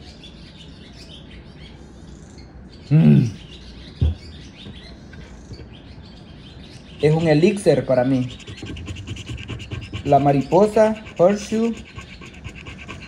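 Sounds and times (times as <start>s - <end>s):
birds chirping faintly: 0.0s - 13.0s
man sighing ahh: 2.9s - 3.4s
single short knock: 4.0s - 4.8s.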